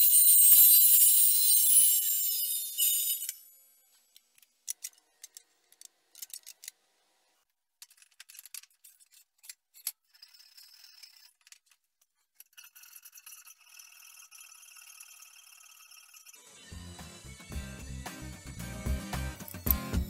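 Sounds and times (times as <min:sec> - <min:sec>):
metallic clicks and scrapes: 0:04.1 - 0:06.8, 0:07.8 - 0:16.4
music: 0:16.4 - 0:20.0.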